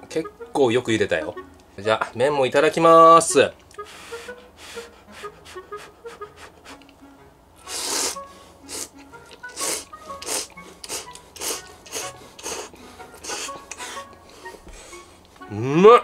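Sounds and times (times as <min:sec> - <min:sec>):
person slurping noodles: 0:07.6 - 0:14.6.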